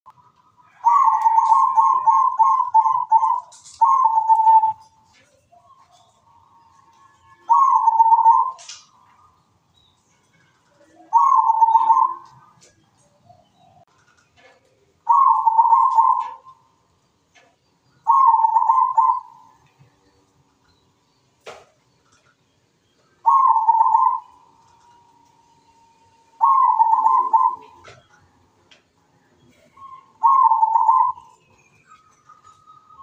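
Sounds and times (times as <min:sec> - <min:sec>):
dove cooing: 0:00.6 - 0:05.0, 0:07.5 - 0:08.7, 0:10.8 - 0:12.6, 0:14.5 - 0:16.6, 0:18.1 - 0:19.6, 0:23.2 - 0:24.9, 0:26.3 - 0:28.1, 0:29.6 - 0:31.4.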